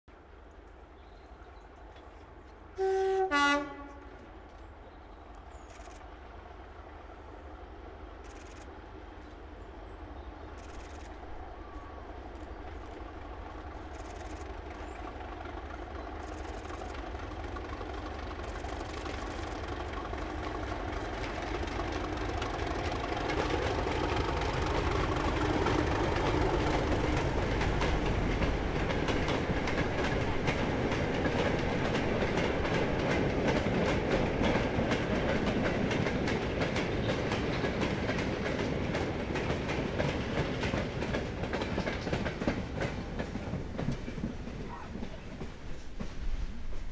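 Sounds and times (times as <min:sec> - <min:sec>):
diesel locomotive engine: 0:00.1 - 0:46.9
two-tone train horn: 0:02.8 - 0:04.3
train wheels clacking on rails: 0:10.5 - 0:46.9.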